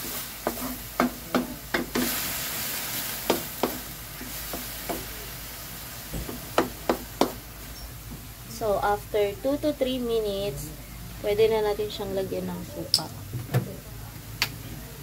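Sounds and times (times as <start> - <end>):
spatula scraping metal wok: 0.0 - 1.2
food sizzling in wok: 0.0 - 9.8.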